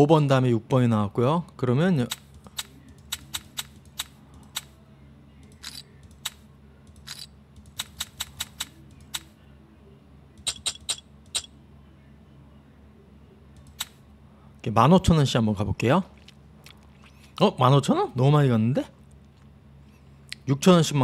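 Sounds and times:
faint low hum: 0.0 - 21.0
computer mouse clicks: 2.1 - 4.8, 5.4 - 9.3, 10.4 - 11.5, 13.6 - 14.0.

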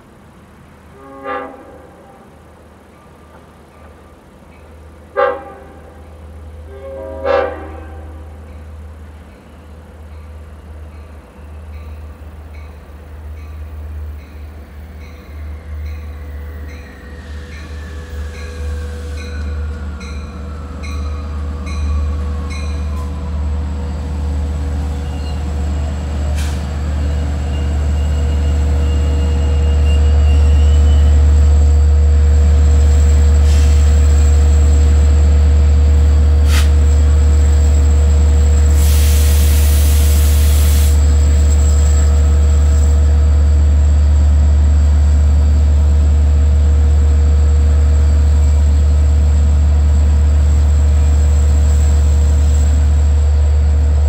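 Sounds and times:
locomotive horn blasts: 0.9 - 2.4, 5.1 - 8.3
locomotive rumble: 5.6 - 54.0.

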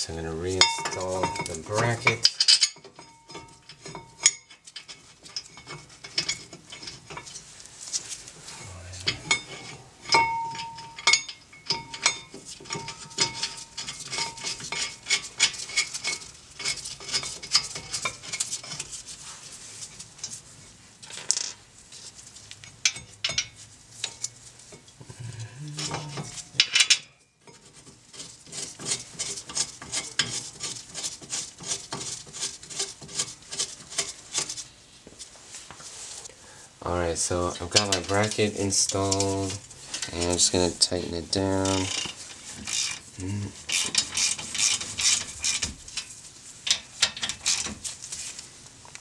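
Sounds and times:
metal parts clicking and clinking: 0.6 - 7.4, 9.1 - 18.8, 25.8 - 27.2, 43.7 - 47.8
metal clatter: 9.1 - 18.9.

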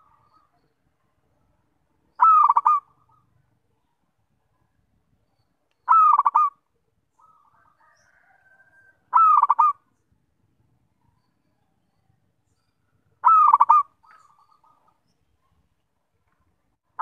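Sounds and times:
dove cooing: 2.2 - 3.4, 5.9 - 6.6, 7.2 - 9.8, 13.2 - 14.9.

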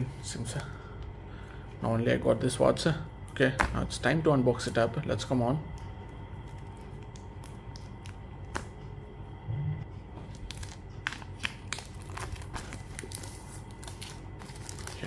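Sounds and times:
plastic shrink wrap crinkling: 10.2 - 15.0.

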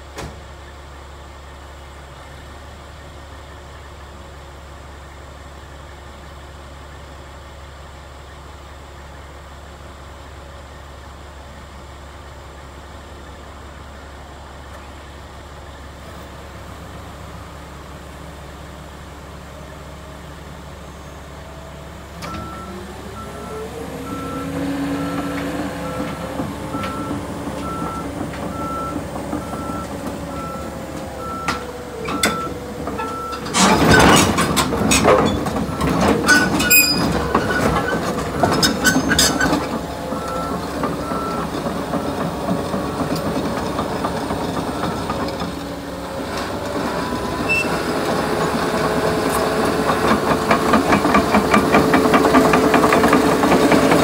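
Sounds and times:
diesel engine revving: 14.2 - 54.0
steel tracks clanking: 19.4 - 54.0
backup alarm beeping: 22.2 - 34.1, 39.0 - 42.3.

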